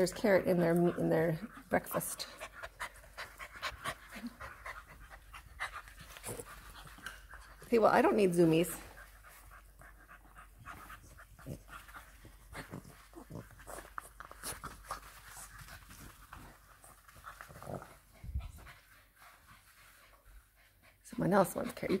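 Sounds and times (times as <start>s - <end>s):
puppy panting: 0.0s - 22.0s.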